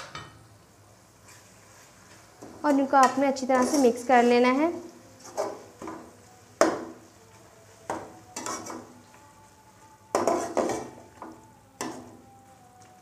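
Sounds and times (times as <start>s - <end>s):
oil sizzling: 0.0s - 12.3s
spatula scraping metal pan: 3.0s - 4.2s, 5.2s - 5.9s, 8.4s - 9.0s, 10.1s - 11.0s.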